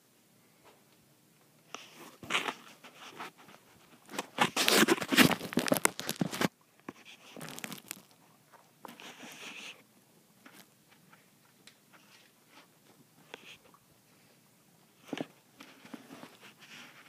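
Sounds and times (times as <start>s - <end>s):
phone microphone rustling: 1.8s - 9.8s.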